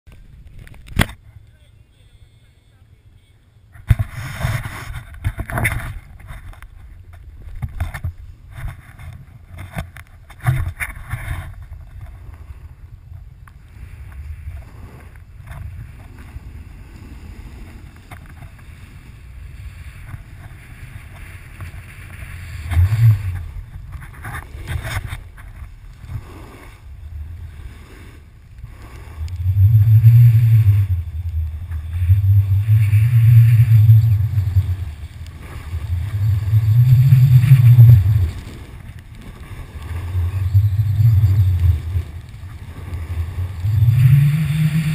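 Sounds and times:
wind buffeting microphone: 0:03.7 - 0:44.9
snowboard hissing on snow: 0:13.7 - 0:23.7, 0:25.9 - 0:44.9.

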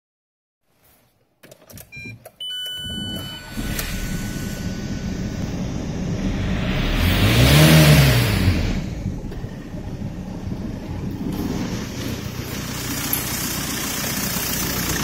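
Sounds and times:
short electronic beeps: 0:01.9 - 0:05.4
diesel engine starting and idling: 0:01.9 - 0:15.0
engine revving: 0:02.9 - 0:15.0.

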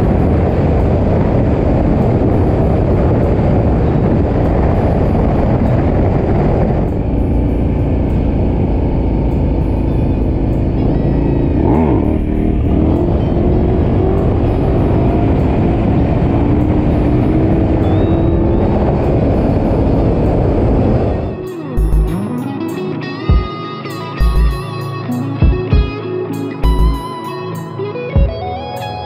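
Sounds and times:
wind on microphone: 0:00.0 - 0:22.2
motorcycle engine running: 0:00.0 - 0:22.5, 0:24.2 - 0:24.7, 0:26.6 - 0:27.0.

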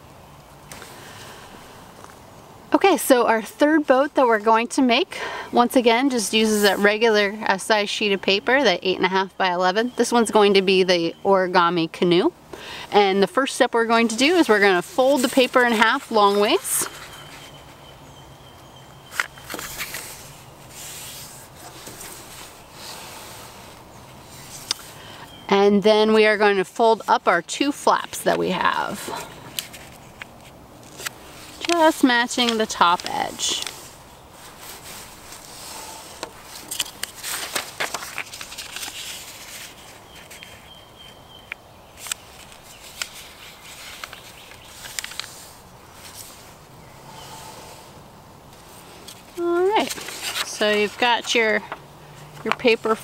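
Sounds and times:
paper crackling: 0:19.1 - 0:25.0, 0:27.9 - 0:40.7, 0:42.0 - 0:46.6, 0:48.5 - 0:51.8.

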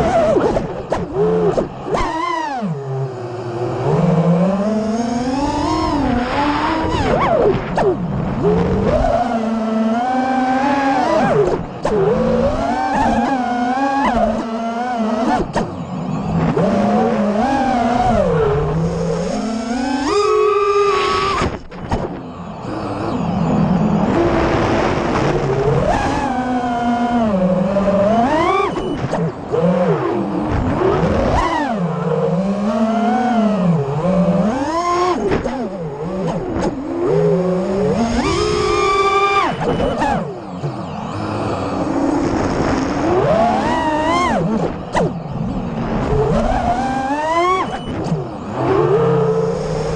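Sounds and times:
quadcopter motors whining: 0:00.0 - 0:49.9.

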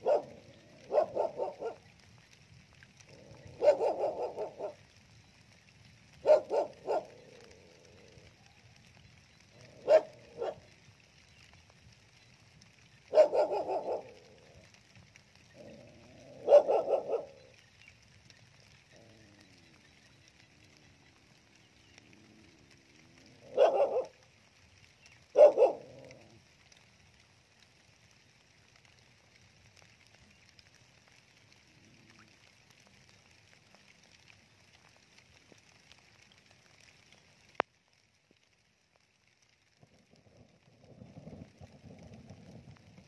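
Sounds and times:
dog barking: 0:00.0 - 0:01.8, 0:03.6 - 0:04.8, 0:06.2 - 0:07.1, 0:09.8 - 0:10.6, 0:13.1 - 0:14.2, 0:16.3 - 0:17.4, 0:23.5 - 0:24.2, 0:25.3 - 0:25.9
faint high hiss: 0:00.0 - 0:43.0.

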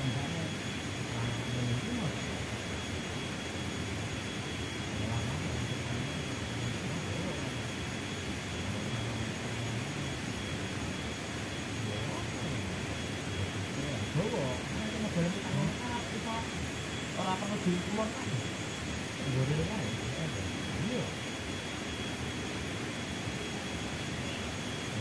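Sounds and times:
faint voices: 0:00.0 - 0:02.8, 0:11.0 - 0:21.5
steady outdoor hiss: 0:00.0 - 0:25.0
thin high whine: 0:00.0 - 0:25.0.

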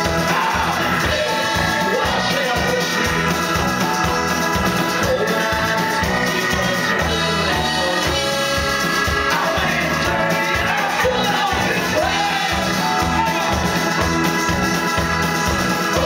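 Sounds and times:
live rock band playing: 0:00.0 - 0:16.0.

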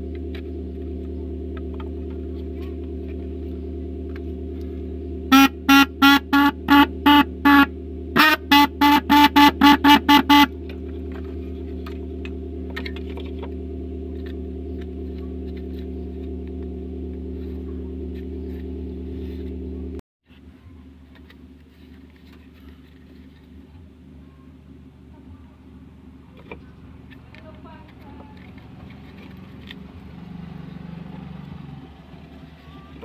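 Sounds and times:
steady low hum: 0:00.0 - 0:33.0
car horn honking: 0:02.3 - 0:19.9.

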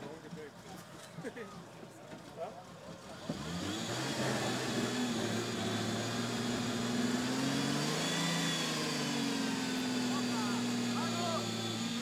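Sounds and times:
truck engine revving high: 0:03.2 - 0:12.0.

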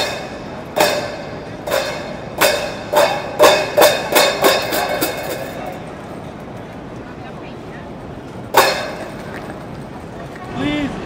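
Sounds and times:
hand cymbals crashing: 0:00.0 - 0:05.6, 0:08.5 - 0:09.2.

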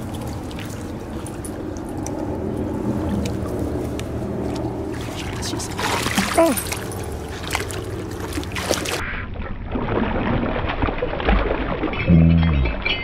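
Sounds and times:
shallow water trickling: 0:00.0 - 0:09.0
low hum: 0:00.0 - 0:11.1
animal splashing into water: 0:04.4 - 0:12.0.

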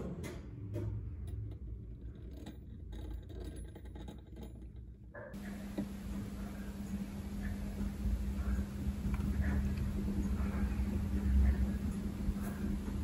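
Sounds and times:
steady low hum: 0:05.2 - 0:13.0.

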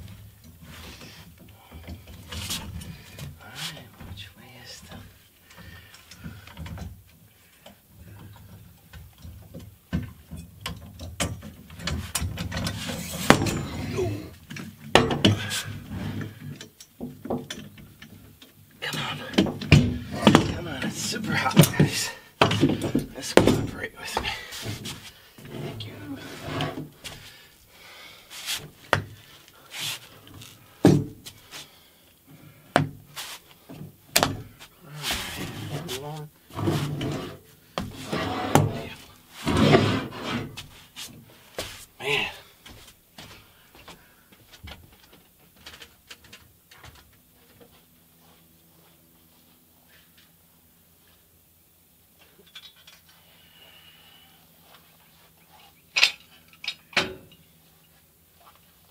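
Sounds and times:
metal scraping and rolling on floor: 0:24.6 - 0:27.0, 0:36.5 - 0:40.6.

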